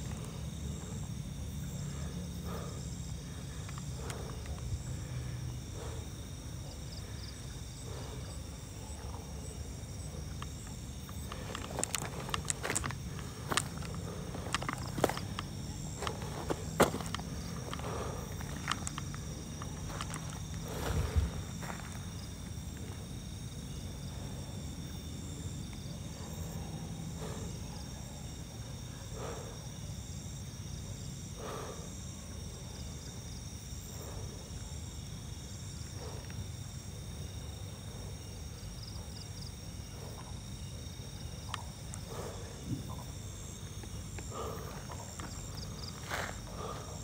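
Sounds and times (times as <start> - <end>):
night insects chirping: 0.0 - 47.0
footsteps on sandy ground: 11.0 - 23.1, 43.8 - 47.0.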